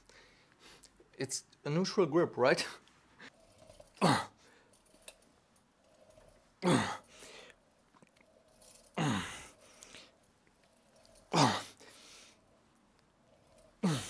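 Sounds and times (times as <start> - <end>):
man exhaling with groan: 8.9 - 9.9, 13.8 - 14.0.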